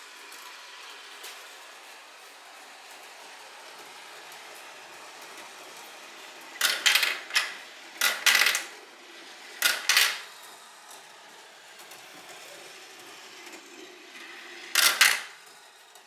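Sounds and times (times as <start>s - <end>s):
marbles rolling on plastic rail: 4.3s - 16.0s
marbles clattering: 6.6s - 8.7s, 14.6s - 15.4s.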